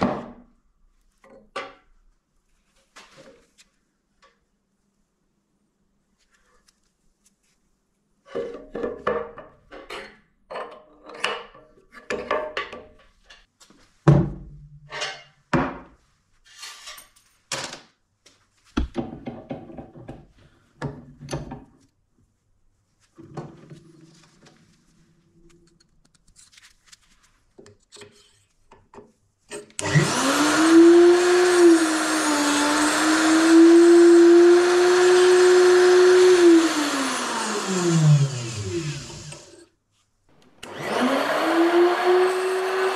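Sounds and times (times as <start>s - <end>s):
knocks and clatter of handling: 8.3s - 15.9s, 18.7s - 21.9s
grinder motor whining: 29.8s - 39.6s, 40.5s - 42.9s.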